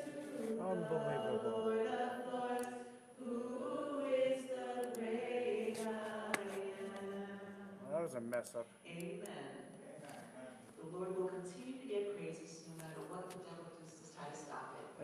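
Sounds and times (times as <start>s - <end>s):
women singing a hymn: 0.0s - 7.8s, 10.8s - 15.0s.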